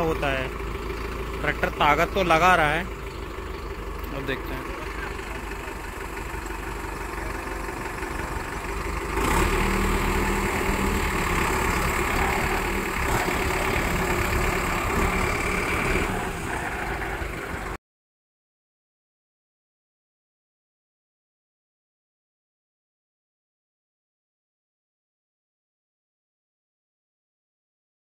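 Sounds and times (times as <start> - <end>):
tractor diesel engine labouring: 0.0 - 17.8.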